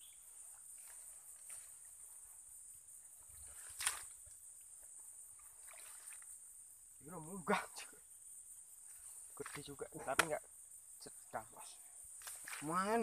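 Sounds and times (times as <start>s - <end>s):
water and mud sloshing: 3.3s - 4.3s, 5.3s - 6.3s, 9.3s - 10.4s, 12.2s - 13.0s
sharp splash: 3.4s - 4.2s, 5.4s - 6.3s, 12.2s - 13.0s.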